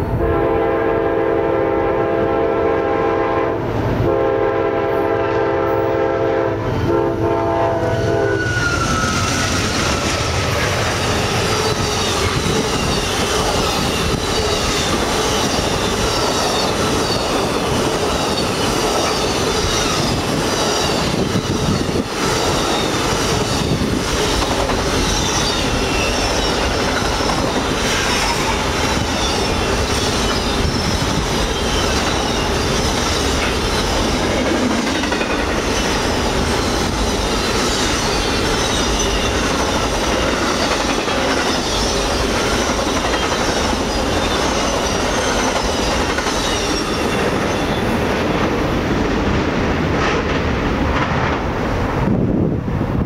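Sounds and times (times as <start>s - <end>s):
train wheels rumbling on rails: 0.0s - 53.0s
high wheel squeal: 7.9s - 48.0s
clickety-clack over rail joints: 8.4s - 52.1s.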